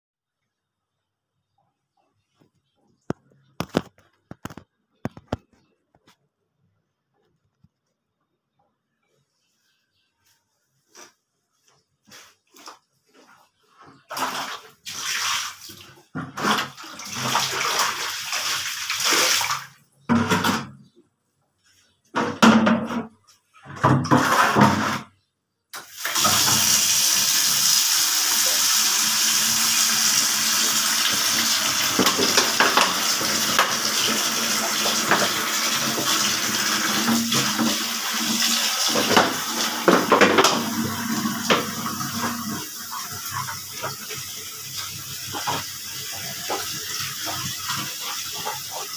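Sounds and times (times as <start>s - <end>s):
brush scrubbing wet laundry: 9.0s - 19.8s, 29.7s - 39.8s, 40.5s - 48.9s
running water: 25.9s - 48.9s.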